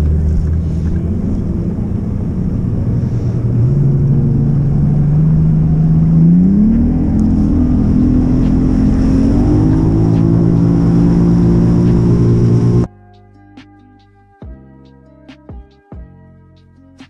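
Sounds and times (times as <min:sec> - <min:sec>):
outboard motor throttling up: 0:00.0 - 0:12.9.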